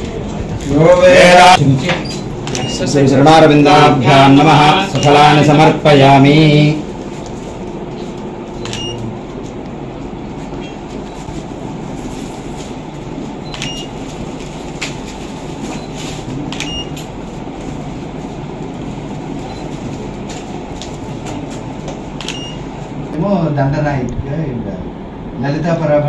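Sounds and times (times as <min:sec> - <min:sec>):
low rumbling background noise: 0:00.0 - 0:26.0.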